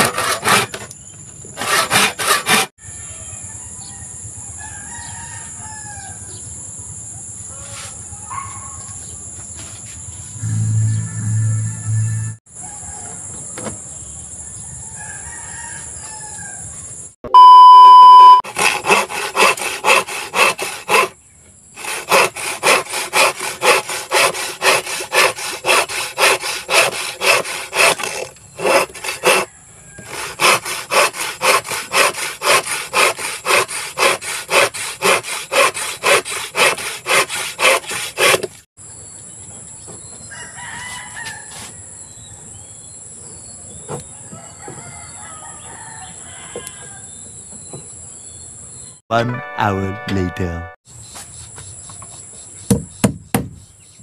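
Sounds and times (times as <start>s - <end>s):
hand saw cutting wood: 0.0s - 0.9s, 1.5s - 2.8s, 18.5s - 21.2s, 21.8s - 38.7s
loud steady beep: 17.3s - 18.4s.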